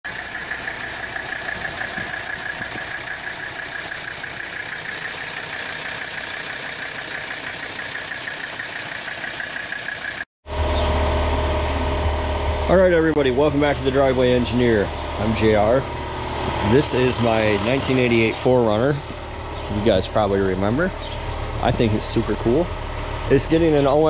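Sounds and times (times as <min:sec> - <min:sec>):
engine running with rhythmic pulse: 0:00.0 - 0:24.0
steady low hum: 0:10.5 - 0:24.0.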